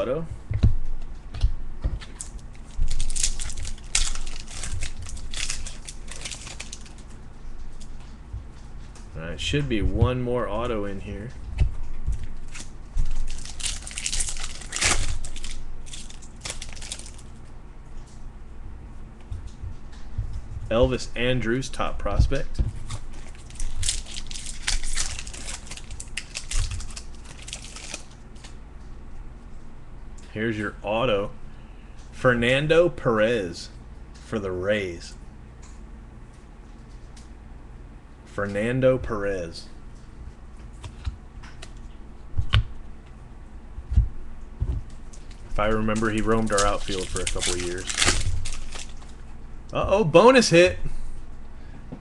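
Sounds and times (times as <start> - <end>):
foil wrapper crinkling and tearing: 2.2 - 7.9, 12.2 - 17.4, 22.8 - 28.6, 44.9 - 49.3.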